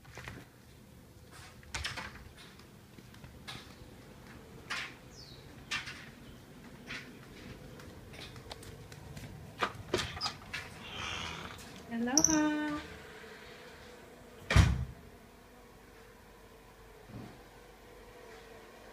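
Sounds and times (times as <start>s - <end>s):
footsteps on concrete: 2.3s - 4.9s, 5.5s - 10.8s.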